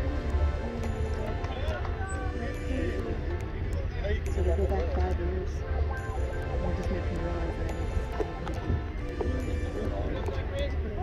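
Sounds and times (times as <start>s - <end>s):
music with held notes: 0.0s - 11.0s
wind rumble on microphone: 6.6s - 11.0s.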